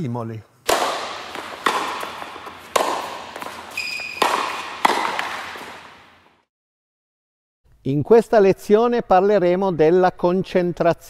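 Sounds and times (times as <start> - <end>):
sharp echoing hits: 0.7 - 6.4.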